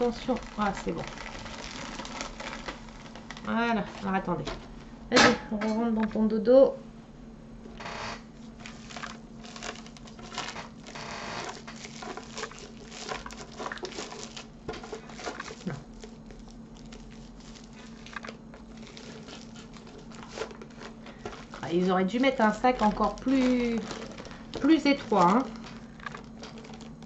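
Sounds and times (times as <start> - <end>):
plastic sleeve crinkling: 0.0 - 4.9, 8.3 - 27.0.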